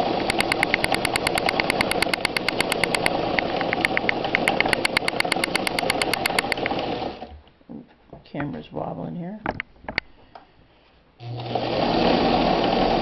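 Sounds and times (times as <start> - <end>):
sewing machine needle ticks: 0.3 - 6.8.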